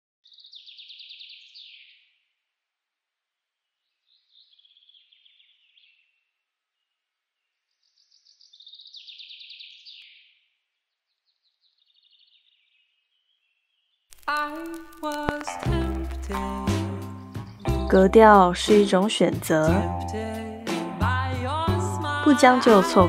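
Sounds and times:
music: 14.3 - 23.0.

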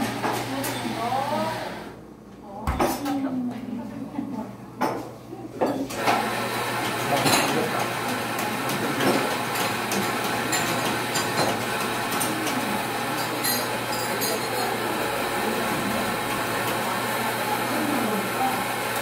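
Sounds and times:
espresso machine running hum: 0.0 - 2.0, 5.9 - 19.0
cups and tools clinking: 7.0 - 15.0.

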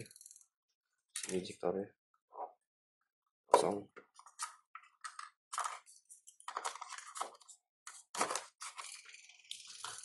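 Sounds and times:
plastic and paper packaging crinkling: 5.5 - 10.0.

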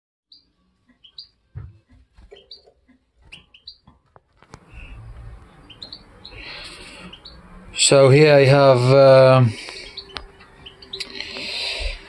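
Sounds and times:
birds chirping: 0.3 - 12.0
low steady rumble: 4.6 - 7.8.

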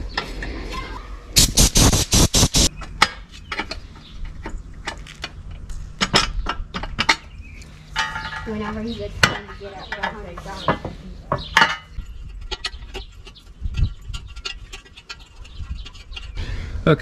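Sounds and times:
metal rattling burst: 1.4 - 2.7.

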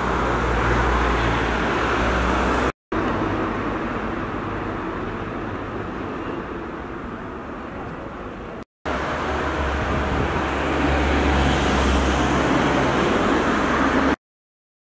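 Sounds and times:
street traffic noise: 0.0 - 14.2.

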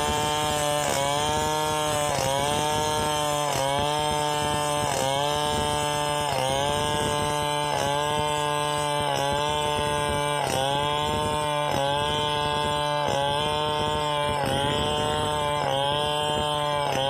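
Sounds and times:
chainsaw cutting through log: 0.0 - 17.0.

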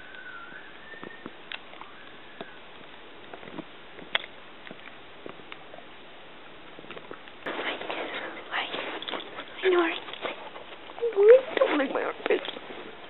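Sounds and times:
high wavering whine: 0.0 - 3.1.

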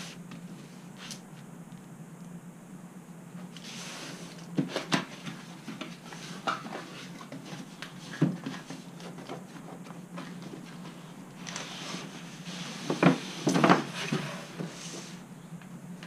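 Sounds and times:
cardboard scraping and rustling: 3.6 - 15.2.

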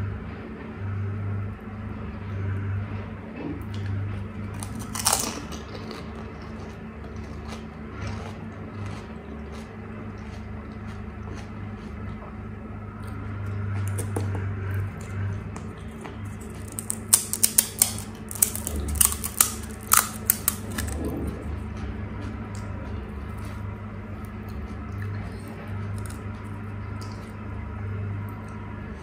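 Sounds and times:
loud crunch of biting: 4.6 - 12.0, 15.0 - 21.0, 25.9 - 26.2
chewing with small crunches: 4.6 - 27.4.

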